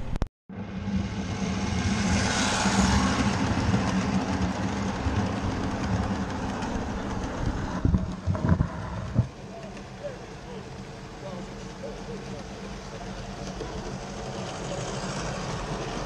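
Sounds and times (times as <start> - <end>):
miniature train passing: 0.6 - 16.0
wheels rolling on rails: 2.8 - 16.0
steady low hum: 3.4 - 16.0.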